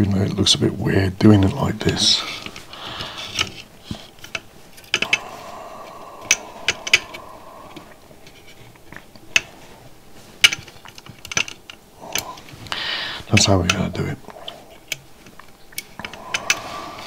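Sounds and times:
soft rubbing noise: 1.5 - 11.2.

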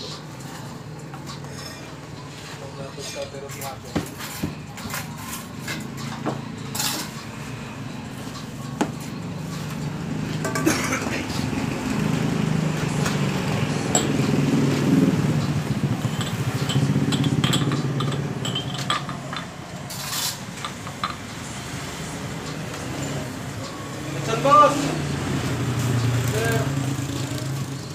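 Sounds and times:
glasses and dishes clinking: 10.4 - 11.1, 13.9 - 14.2, 15.9 - 21.3
vehicle engine passing: 11.2 - 27.9.

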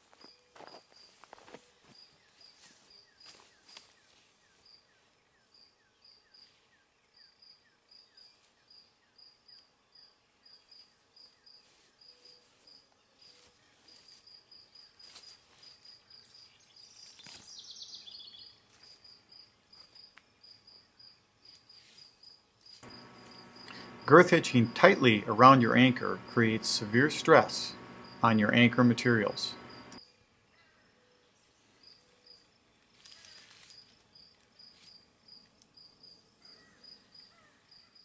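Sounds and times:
insect chirping: 0.2 - 30.2, 31.8 - 38.0.

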